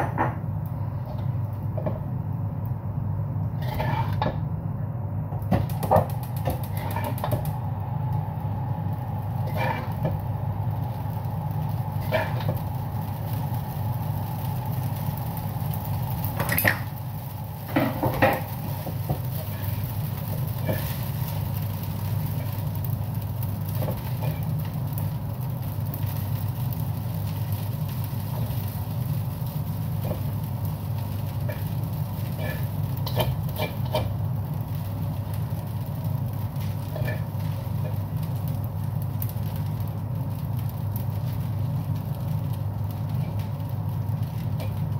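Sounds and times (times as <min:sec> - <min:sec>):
range hood fan humming: 0:00.0 - 0:44.9
utensils scraping a wok: 0:03.6 - 0:04.4, 0:06.6 - 0:07.4, 0:09.4 - 0:10.2, 0:12.0 - 0:12.6, 0:31.3 - 0:34.2, 0:36.6 - 0:38.0.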